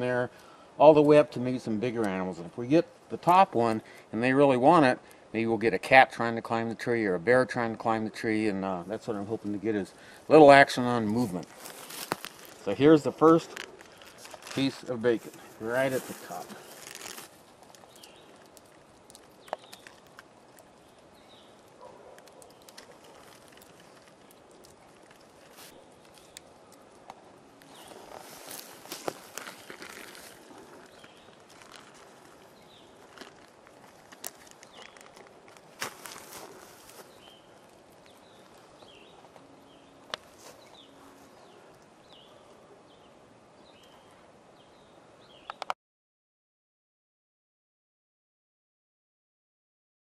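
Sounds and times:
faint outdoor background: 0:00.0 - 0:45.8
bird chirping: 0:27.6 - 0:33.4, 0:36.0 - 0:45.7
faint rustling: 0:27.6 - 0:39.5.

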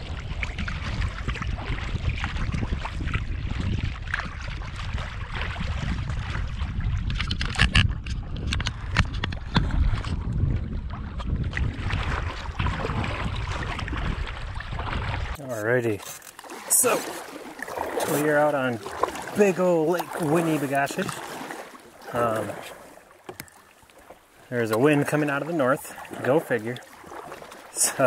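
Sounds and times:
wind rumbling on microphone: 0:00.0 - 0:15.9
water lapping and splashing: 0:00.0 - 0:28.0
sharp splashes or knocks: 0:16.0 - 0:27.7.

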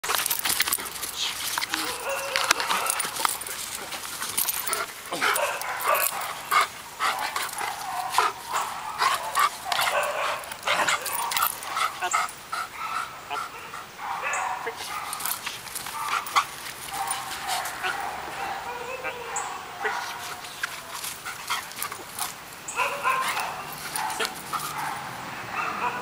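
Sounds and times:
dog barking: 0:01.8 - 0:03.2, 0:05.1 - 0:06.5, 0:07.1 - 0:12.1, 0:12.8 - 0:15.3, 0:15.9 - 0:20.4, 0:22.8 - 0:26.0.

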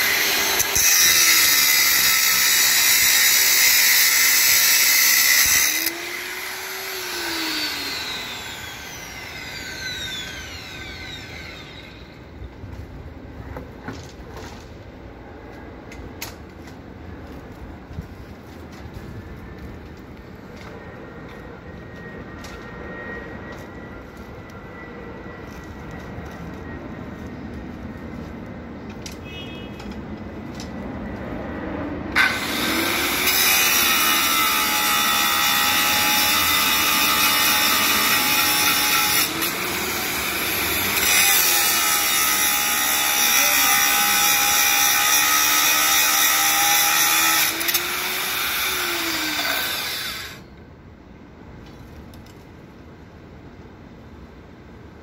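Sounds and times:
angle grinder cutting steel: 0:00.0 - 0:12.2, 0:32.1 - 0:50.5.

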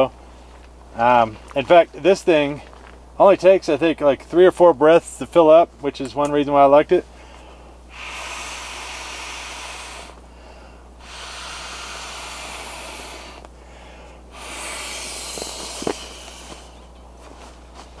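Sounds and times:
man blowing into pillow valve: 0:07.4 - 0:17.0.

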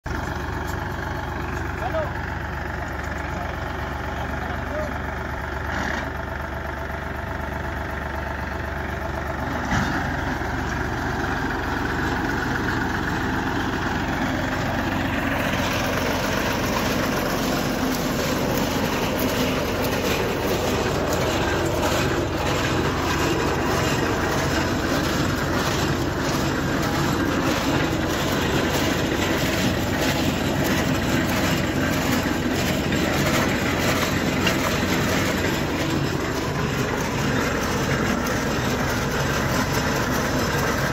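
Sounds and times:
tractor engine running: 0:00.0 - 0:40.9
planter mechanism clattering: 0:09.4 - 0:40.9.

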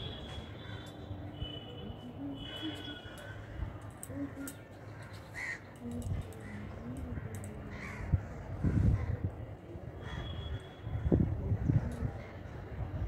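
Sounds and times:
crow cawing: 0:05.3 - 0:05.7, 0:07.7 - 0:09.2.

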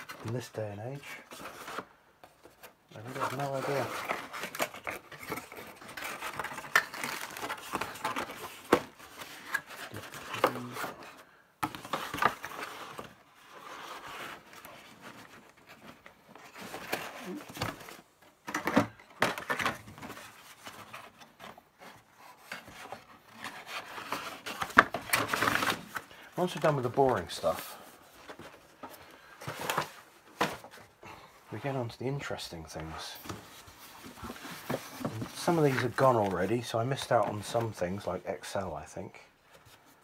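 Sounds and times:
packaging and cables rustling: 0:00.0 - 0:31.0
clicks and knocks of items set down: 0:18.4 - 0:20.0.

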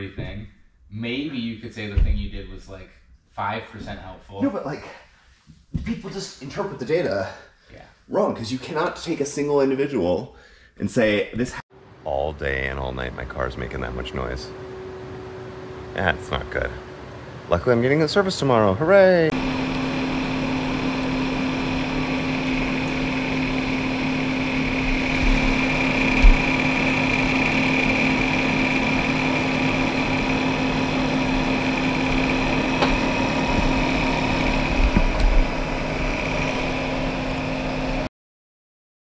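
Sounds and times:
computer fans whirring: 0:11.9 - 0:38.1.

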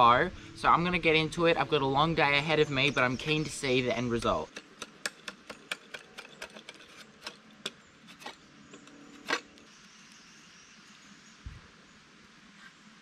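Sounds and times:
knife scraping wood: 0:04.5 - 0:09.6.

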